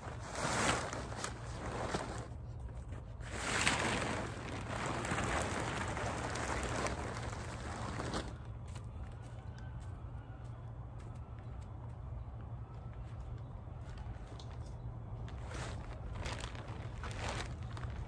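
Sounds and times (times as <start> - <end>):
tent fabric rustling: 0.0 - 8.5, 15.2 - 18.0.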